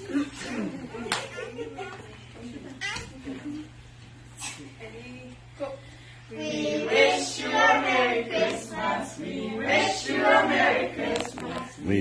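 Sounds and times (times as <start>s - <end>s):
children and adults singing: 6.3s - 11.9s.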